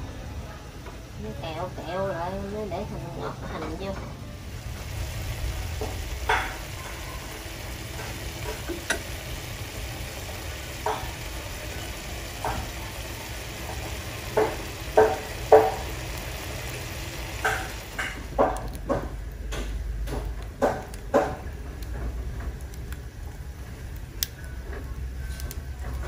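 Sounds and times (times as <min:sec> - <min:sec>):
sauce bubbling and popping: 0:04.6 - 0:24.6.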